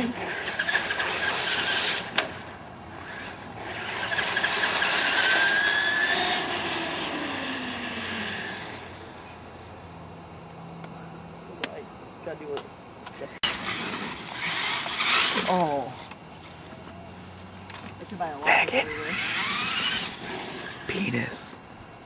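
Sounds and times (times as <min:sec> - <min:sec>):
toy truck motor whine: 0:00.0 - 0:09.2, 0:13.4 - 0:15.9, 0:18.8 - 0:20.9.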